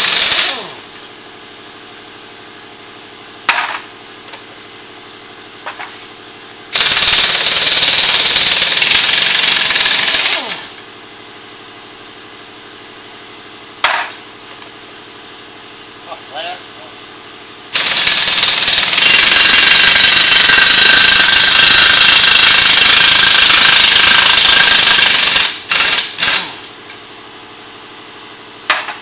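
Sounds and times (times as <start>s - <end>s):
impact wrench hammering: 3.4s - 4.4s, 6.7s - 10.8s, 13.8s - 14.2s, 17.7s - 26.7s, 28.7s - 29.0s
steady hum: 9.5s - 18.2s.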